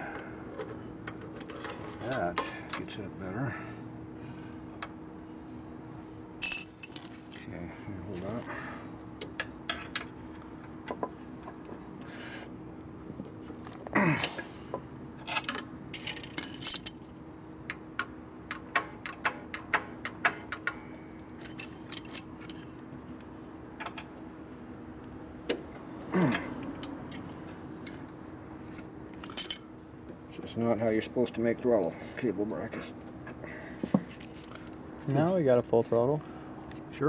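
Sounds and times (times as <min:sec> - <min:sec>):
faint steady hum: 0:00.0 - 0:37.0
pliers and metal parts clinking: 0:06.4 - 0:07.5, 0:15.2 - 0:17.0, 0:21.4 - 0:22.7, 0:29.2 - 0:29.6.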